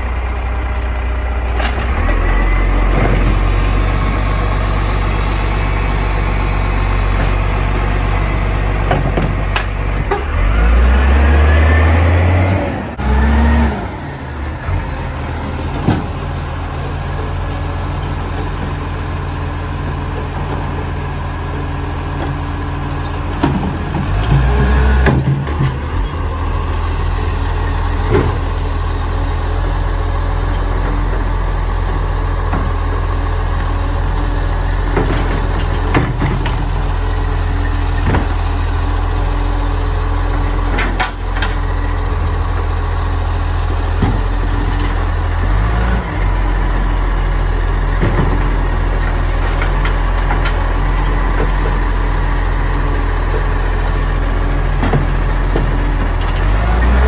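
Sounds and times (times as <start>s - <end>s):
diesel engine idling: 0.0s - 57.0s
bins knocking and clunking: 48.0s - 48.6s.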